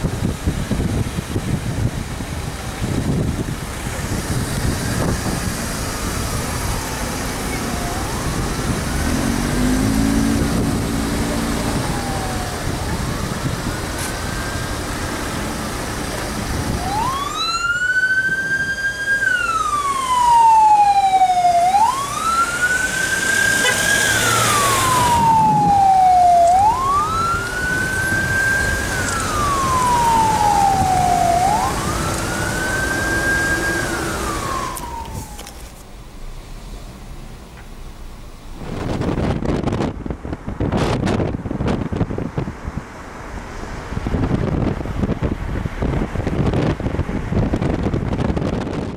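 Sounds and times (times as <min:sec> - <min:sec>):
traffic noise: 0:00.0 - 0:48.9
ambulance siren wailing: 0:04.6 - 0:35.8.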